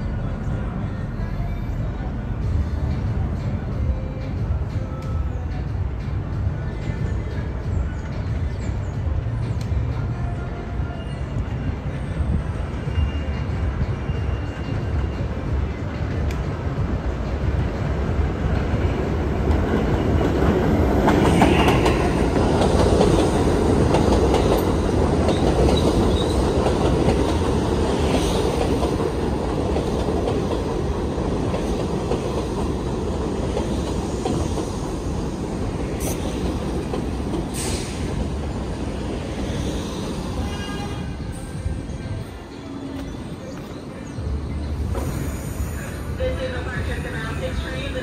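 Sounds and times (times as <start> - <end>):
subway train wheels rumbling: 0.0 - 48.0
train wheel squeals: 10.8 - 15.4, 25.3 - 26.6.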